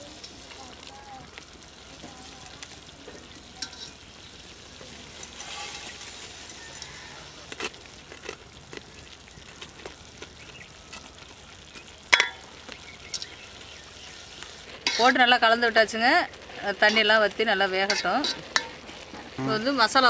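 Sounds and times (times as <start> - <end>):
pot boiling: 0.0 - 20.0
metal clinking against pot: 3.1 - 4.0, 12.1 - 12.5.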